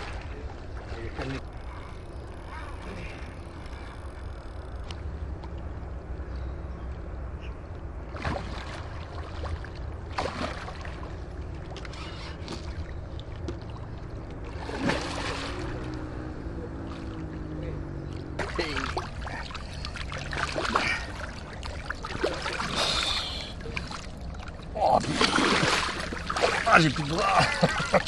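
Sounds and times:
fish thrashing splashes: 0:08.1 - 0:11.2, 0:14.5 - 0:15.9, 0:18.4 - 0:28.0.

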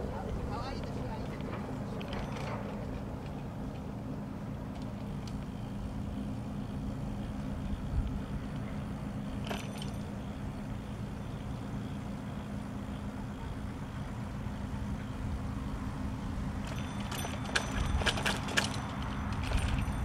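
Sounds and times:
bicycle rolling rumble: 0:00.0 - 0:20.0
bike rattling over bumps: 0:00.5 - 0:14.8, 0:15.5 - 0:20.0.

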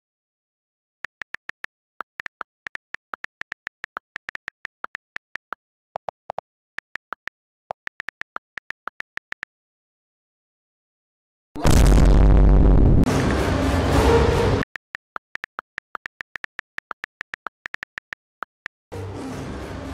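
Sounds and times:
phone keyboard clicks: 0:01.0 - 0:09.5, 0:14.7 - 0:18.9.

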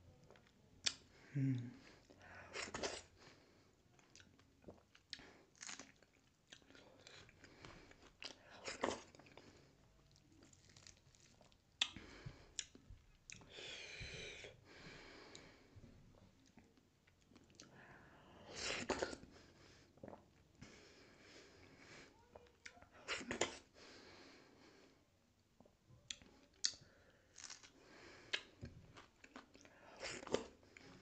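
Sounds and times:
wet chewing and lip smacking: 0:04.0 - 0:09.4, 0:10.0 - 0:13.5, 0:28.3 - 0:31.0.

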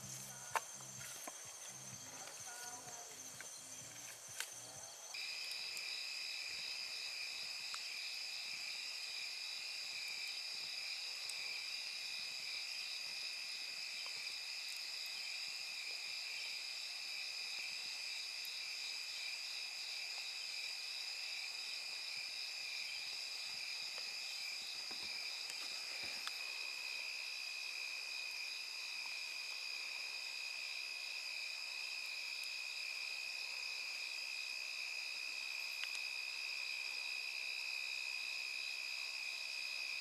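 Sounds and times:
campfire crackling: 0:00.0 - 0:37.1
insects chirring: 0:00.0 - 0:40.0.

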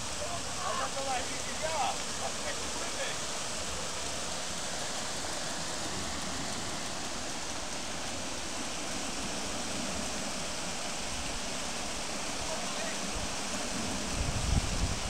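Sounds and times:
river water rushing over weir: 0:00.0 - 0:15.0.

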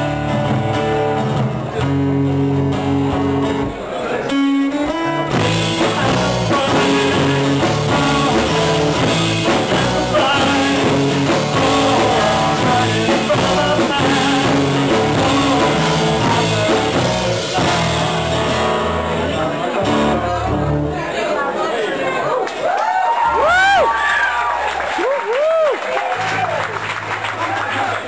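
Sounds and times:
drums: 0:00.0 - 0:20.9
acoustic guitar strumming: 0:00.0 - 0:21.0
electric bass: 0:00.0 - 0:21.0
man singing into a microphone: 0:04.3 - 0:20.6.

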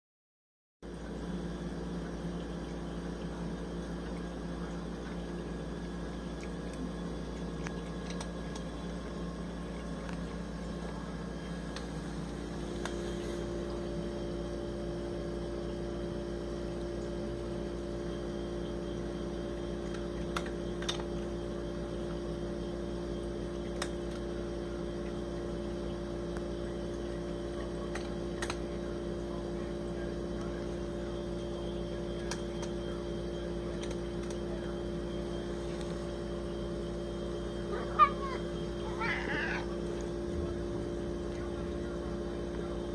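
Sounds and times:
steady mechanical hum: 0:00.8 - 0:42.9
cat crunching dry kibble: 0:27.6 - 0:28.8, 0:33.6 - 0:34.6.

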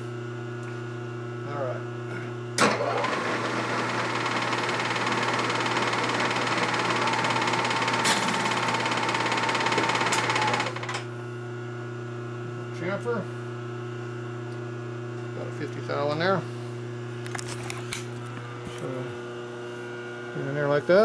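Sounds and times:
milling machine boring metal: 0:03.0 - 0:11.0.

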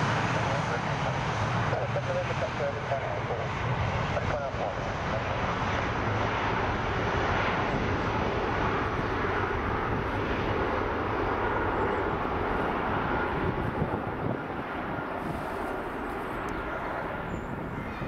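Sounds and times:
jet engines at high power: 0:00.0 - 0:18.0.

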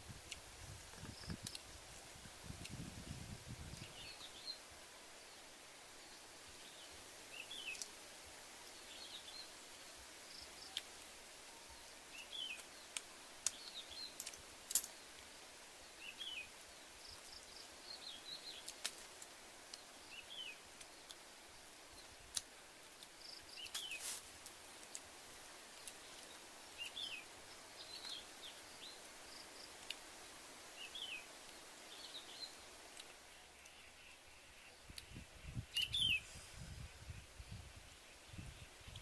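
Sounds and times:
shells clicking and tapping: 0:14.2 - 0:14.9.

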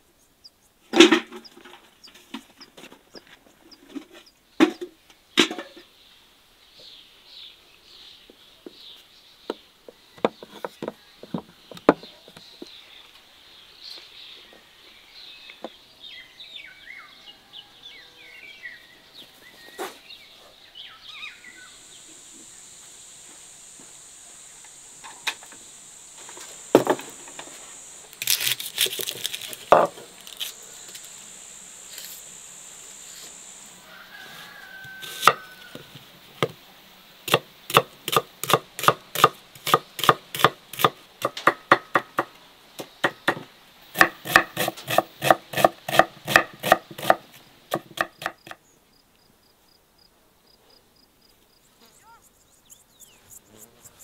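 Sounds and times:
birds chirping: 0:00.0 - 0:28.2, 0:51.2 - 0:54.0
high insect-like whine: 0:21.0 - 0:49.8, 0:51.0 - 0:54.0.

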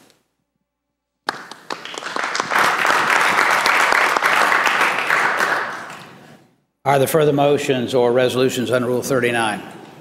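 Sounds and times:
crowd applauding: 0:01.3 - 0:06.3.

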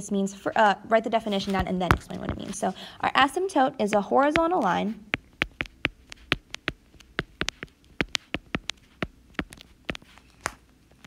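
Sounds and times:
stylus tapping on glass screen: 0:05.2 - 0:10.1.

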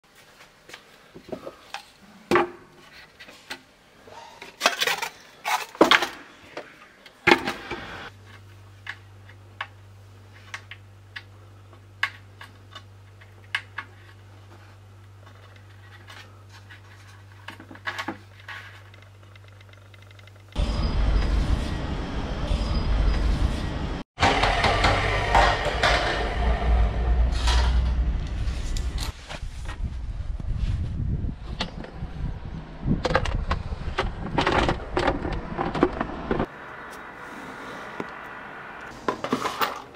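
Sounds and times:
steady low hum: 0:18.6 - 0:39.0.

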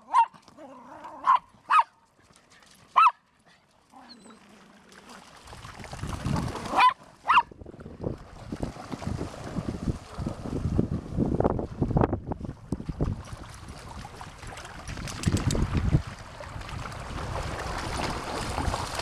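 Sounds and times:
dog barking: 0:00.1 - 0:00.3, 0:01.2 - 0:02.0, 0:03.0 - 0:03.2, 0:06.8 - 0:07.5
dog splashing through water: 0:04.4 - 0:07.2, 0:08.0 - 0:11.0, 0:12.8 - 0:19.0.

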